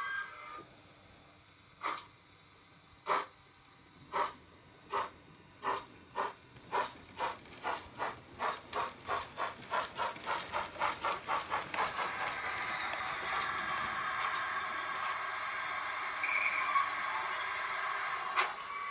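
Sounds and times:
model locomotive steam chuffing: 0.0 - 18.9.

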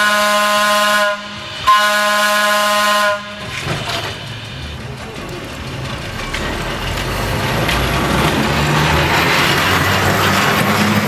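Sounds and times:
train horn blasts: 0.0 - 3.6
railcar rumbling on rails: 0.0 - 11.0.

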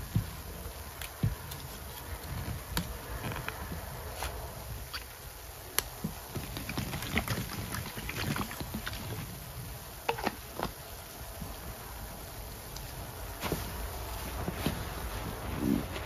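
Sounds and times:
foamy suds squishing and popping: 0.0 - 11.9.

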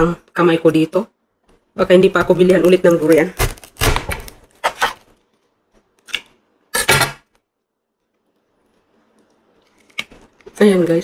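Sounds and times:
husk cracking apart: 2.9 - 5.2.

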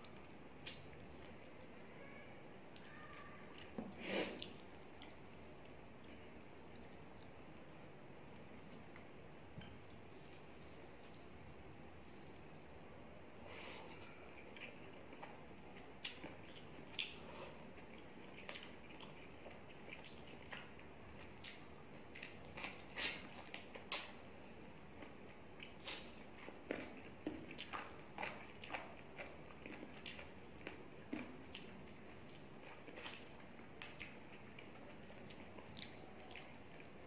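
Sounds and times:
wet chewing and lip smacks: 14.6 - 17.2, 17.8 - 24.2, 25.0 - 37.0.

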